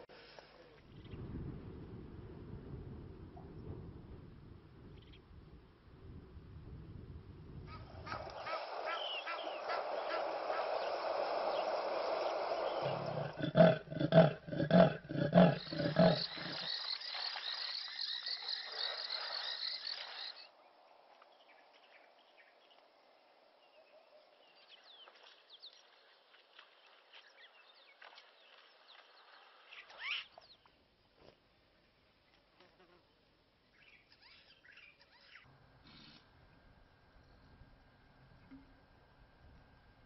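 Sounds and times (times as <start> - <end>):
hippos grunting honks: 12.8 - 16.6
small bird chirps: 15.6 - 20.5, 29.7 - 30.7, 33.7 - 36.2.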